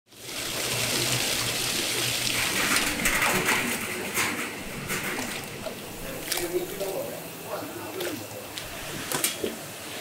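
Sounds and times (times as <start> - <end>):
water rushing: 0.1 - 10.0
low machine hum: 0.2 - 9.8.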